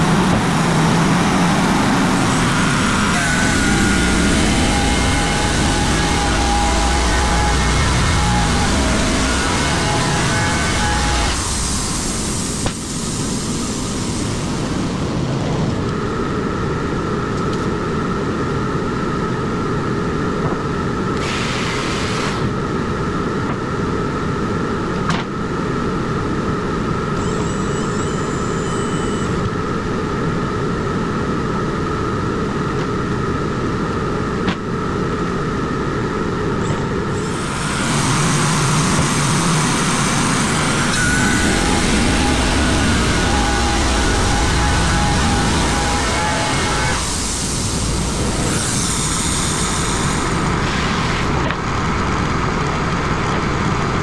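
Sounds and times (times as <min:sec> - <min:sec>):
band saw blade whining: 0:00.0 - 0:13.7, 0:36.6 - 0:51.4
sawmill engine: 0:00.0 - 0:16.8, 0:26.9 - 0:54.0.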